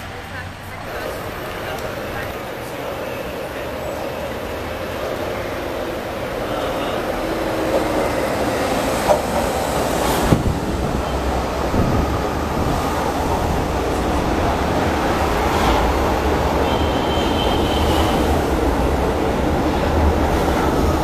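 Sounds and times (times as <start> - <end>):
train rumbling past: 0.0 - 21.0
train wheels clacking: 0.9 - 18.5.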